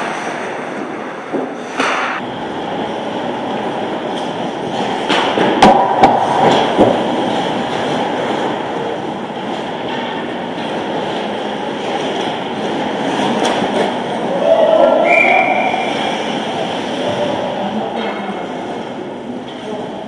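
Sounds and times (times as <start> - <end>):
skates scraping on ice: 0.0 - 18.9
puck and sticks knocking: 5.0 - 7.3.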